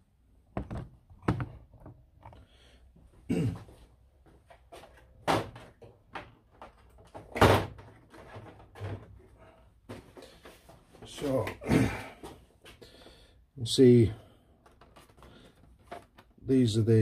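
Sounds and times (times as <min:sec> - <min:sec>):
plastic cases knocking in drawer: 0:00.6 - 0:02.0.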